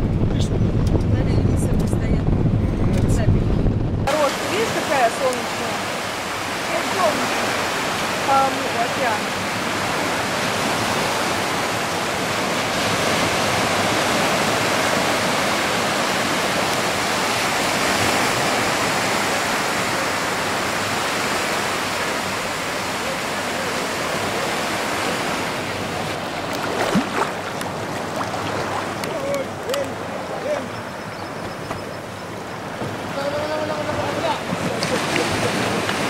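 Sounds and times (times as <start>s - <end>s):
surf washing onto beach: 0.0s - 36.0s.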